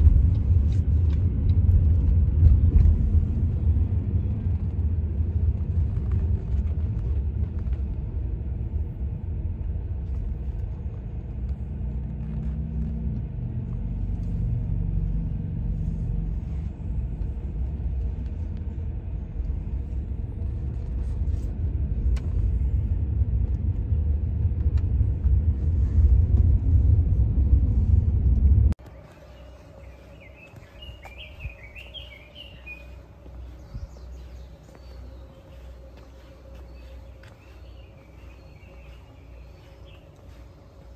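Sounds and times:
car cabin road rumble: 0.0s - 40.9s
bird chirping: 29.0s - 40.9s.

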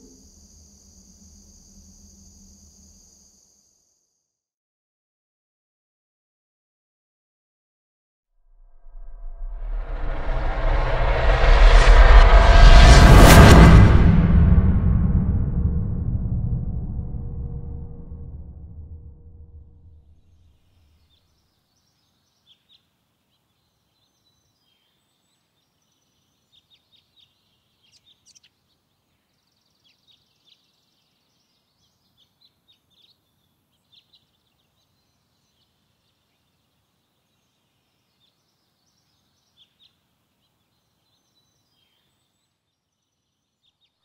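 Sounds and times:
bird chirps: 0.0s - 4.1s, 20.5s - 44.0s
low sound: 8.6s - 20.1s.

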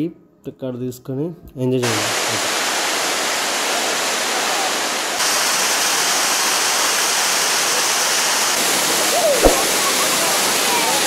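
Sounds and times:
waterfall rushing: 1.8s - 11.0s.

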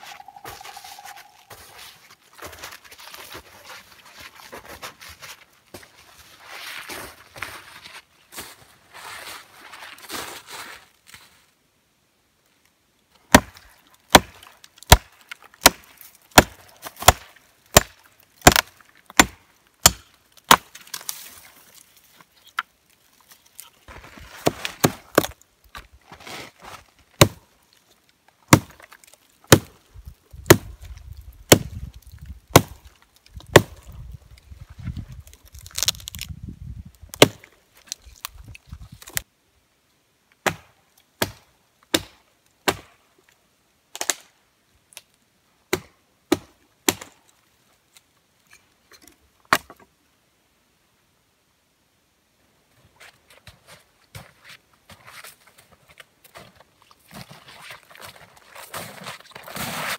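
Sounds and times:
hatchet chopping log: 13.3s - 20.7s, 27.2s - 27.4s, 28.5s - 28.8s, 29.5s - 29.7s, 30.5s - 30.7s, 31.5s - 31.8s, 32.5s - 32.8s, 33.5s - 33.8s, 37.2s - 37.5s, 40.4s - 42.9s, 45.7s - 47.2s.

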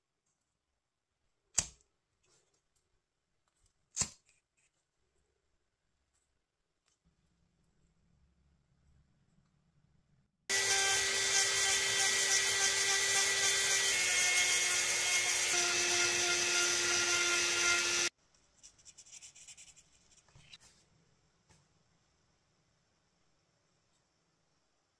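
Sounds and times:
power tool whining and grinding: 10.5s - 18.1s.

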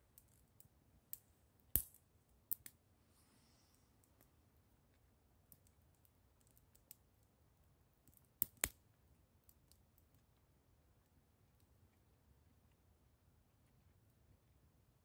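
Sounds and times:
wood fire crackling: 8.0s - 8.8s
fire popping: 8.4s - 8.8s.

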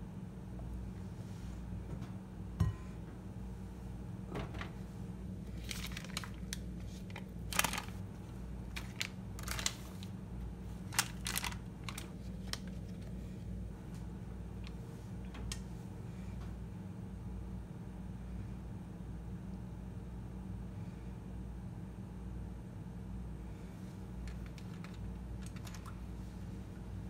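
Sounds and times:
steady low hum: 0.0s - 27.0s
paper wrapper crinkling: 5.5s - 13.2s, 24.2s - 26.0s.

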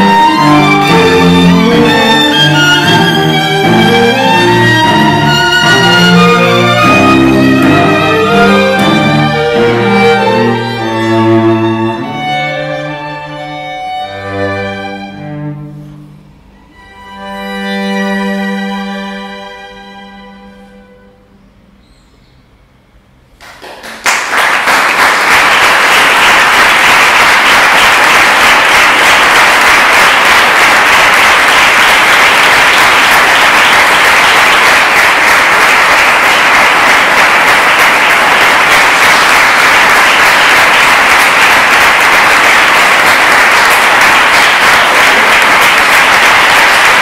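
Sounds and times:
audience applause: 23.4s - 47.0s.

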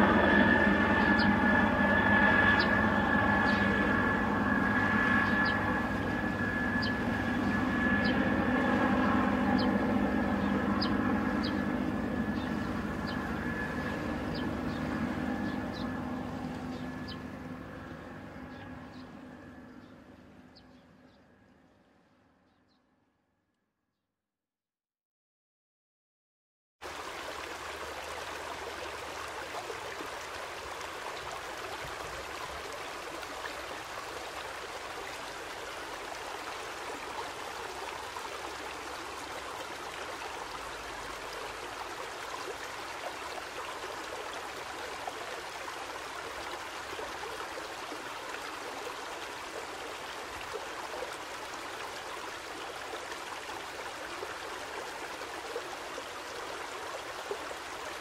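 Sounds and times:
stream rushing: 26.8s - 58.0s.

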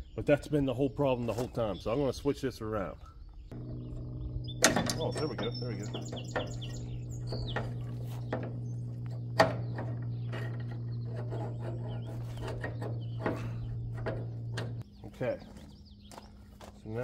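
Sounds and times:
birds chirping: 0.0s - 17.0s
steady low hum: 3.1s - 17.0s
baler metal clicks and knocks: 4.6s - 14.9s.

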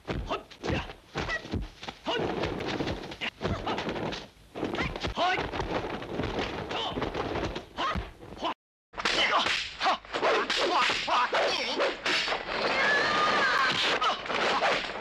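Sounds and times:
sharp whacks of blows: 9.0s - 12.4s.

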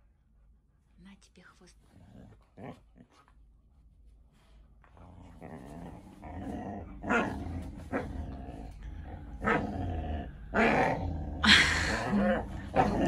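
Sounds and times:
dogs growling: 1.8s - 3.3s, 4.8s - 13.0s.

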